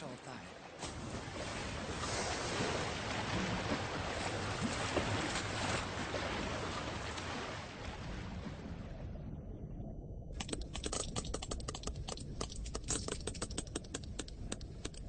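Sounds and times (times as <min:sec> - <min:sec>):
faint splashes: 0:00.0 - 0:09.1
sea water rushing: 0:00.0 - 0:09.3.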